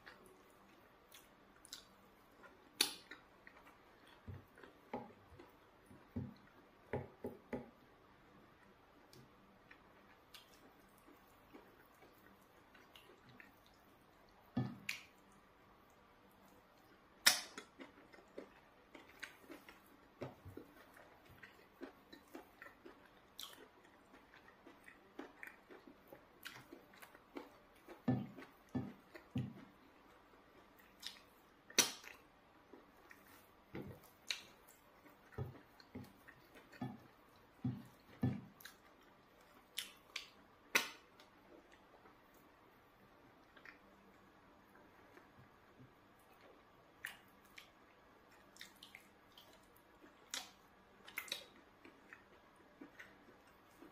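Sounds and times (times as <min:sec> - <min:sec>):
wet chewing and lip smacks: 0:00.0 - 0:06.8, 0:08.6 - 0:42.6, 0:43.4 - 0:53.9
sharp smacks: 0:17.2 - 0:17.6.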